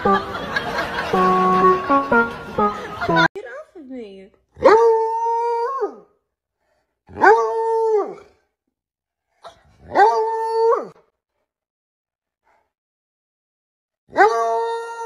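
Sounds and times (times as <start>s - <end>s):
dog howling: 4.6s - 6.1s, 7.1s - 8.4s, 9.8s - 11.0s, 14.1s - 15.0s.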